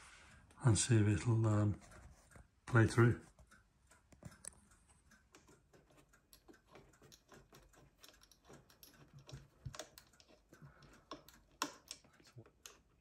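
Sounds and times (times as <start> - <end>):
screwdriver clicks and taps: 5.2 - 12.9.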